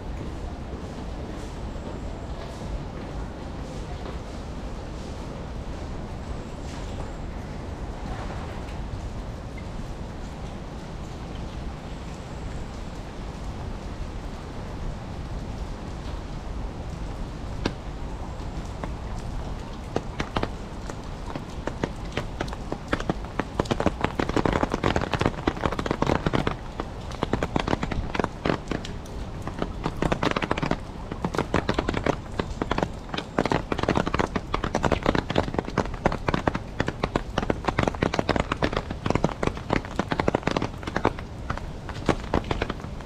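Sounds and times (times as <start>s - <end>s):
rain tapping on plastic umbrella: 0.0s - 43.0s.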